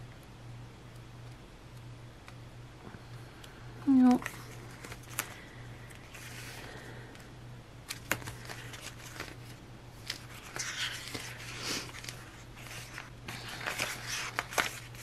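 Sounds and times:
steady low hum: 0:00.0 - 0:15.0
paper rustling and crinkling: 0:04.1 - 0:06.8, 0:07.9 - 0:15.0.

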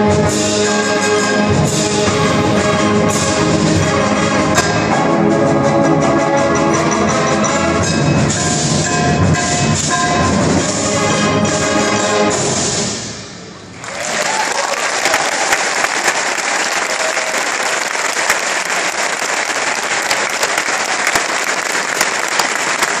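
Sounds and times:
audience applause: 0:13.8 - 0:23.0.

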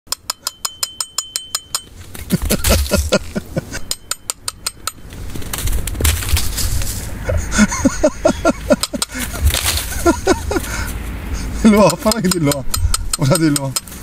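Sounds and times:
metal spoon clinking on hard object: 0:00.2 - 0:01.9, 0:03.8 - 0:05.0.

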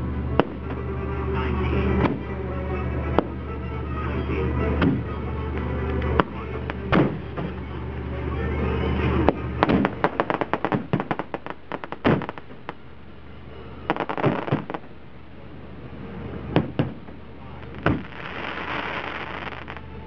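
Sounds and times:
crackling firework pops: 0:00.4 - 0:00.8, 0:09.3 - 0:12.8, 0:13.9 - 0:14.9, 0:16.5 - 0:19.9
firework shells bursting: 0:09.3 - 0:12.9, 0:13.9 - 0:14.9, 0:17.7 - 0:19.9.

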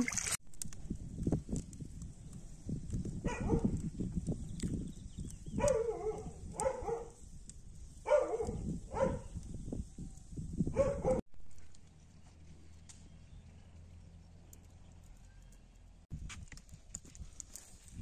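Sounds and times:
dog barking: 0:03.2 - 0:03.7, 0:05.6 - 0:07.2, 0:08.0 - 0:09.3, 0:10.7 - 0:11.2.

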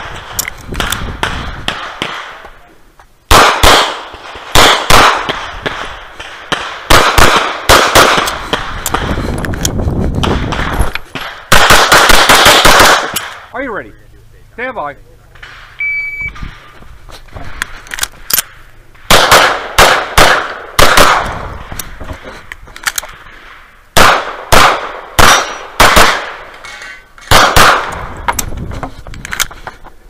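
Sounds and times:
pistol shots: 0:00.0 - 0:02.4, 0:03.3 - 0:09.2, 0:10.2 - 0:13.4, 0:17.6 - 0:21.5, 0:24.0 - 0:26.5, 0:27.3 - 0:28.2.

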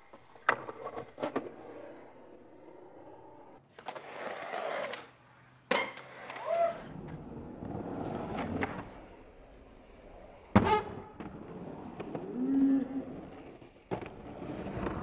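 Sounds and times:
skateboard wheels rolling on concrete: 0:00.0 - 0:15.0
skateboard cracking on concrete: 0:03.3 - 0:09.2, 0:10.0 - 0:15.0.

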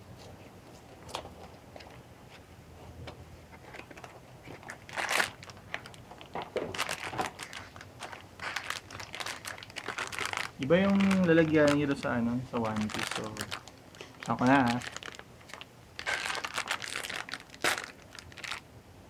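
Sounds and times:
foil bag crinkling: 0:03.8 - 0:18.6
foil crackles: 0:04.5 - 0:18.6.

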